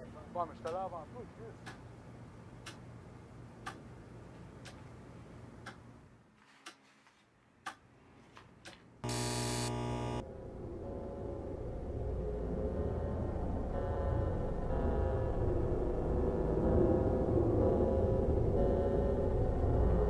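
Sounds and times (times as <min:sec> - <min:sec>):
wall clock ticking: 0:01.6 - 0:01.8, 0:02.6 - 0:02.9, 0:03.6 - 0:03.8, 0:07.6 - 0:07.8
loud buzzing burst: 0:09.0 - 0:10.2.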